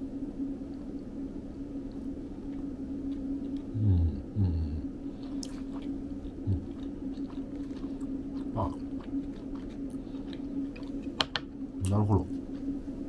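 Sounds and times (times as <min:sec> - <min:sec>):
steady low hum: 0:00.0 - 0:13.0
murmured hums of tasting: 0:00.7 - 0:13.0
person chewing with mouth closed: 0:01.9 - 0:11.5.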